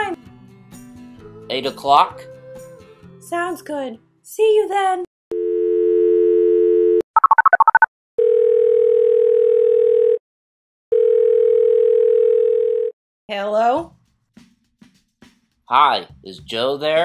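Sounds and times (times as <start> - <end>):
telephone dial tone: 5.3 - 10.2, 10.9 - 12.9
telephone ringback tones: 5.3 - 10.2, 10.9 - 12.9.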